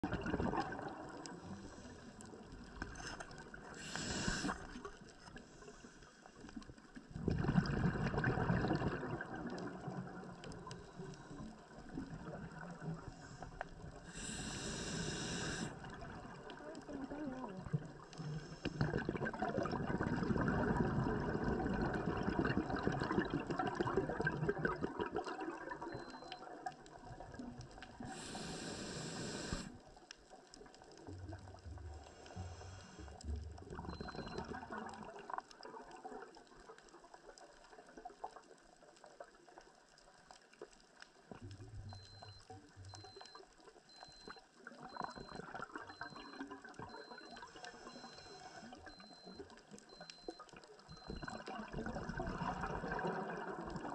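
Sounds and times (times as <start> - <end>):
underwater water noise with crackling: 0.0 - 53.9
short bursts of hiss: 3.8 - 4.6, 14.2 - 15.7.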